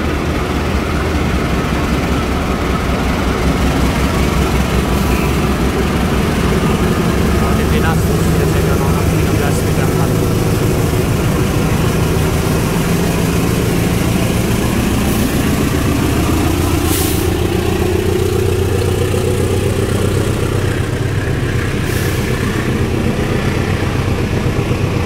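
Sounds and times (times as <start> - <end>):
diesel locomotive engine running: 0.0 - 25.0.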